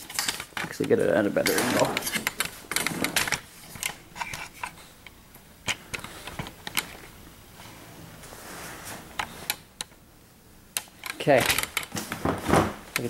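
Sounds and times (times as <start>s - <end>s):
light handling clicks and knocks: 10.8s - 13.0s.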